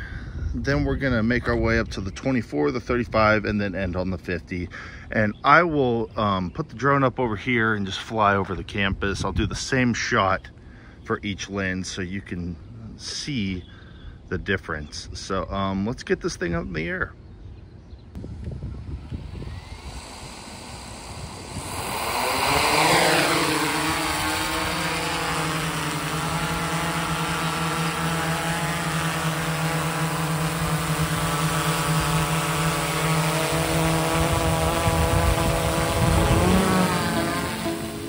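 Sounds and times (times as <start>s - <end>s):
drone propellers whirring: 18.2s - 38.0s.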